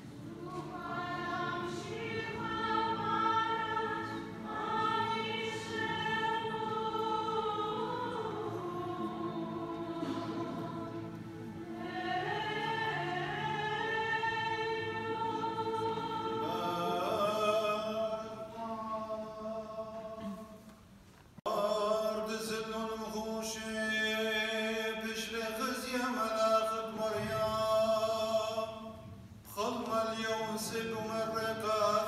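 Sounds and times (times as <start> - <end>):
choir singing a chant: 0.0 - 20.4.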